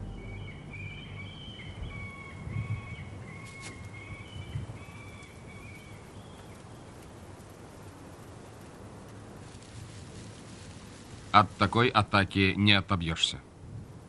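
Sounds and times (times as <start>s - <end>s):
bird calling in high notes: 0.0s - 4.4s.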